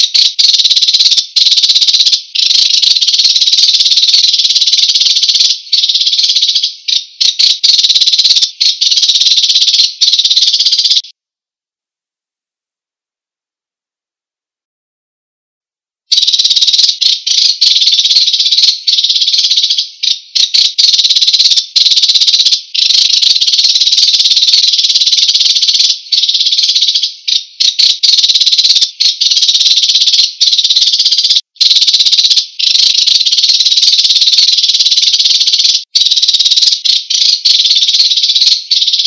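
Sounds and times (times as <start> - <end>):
sparrow trill: 0.0 - 11.1, 16.1 - 39.0.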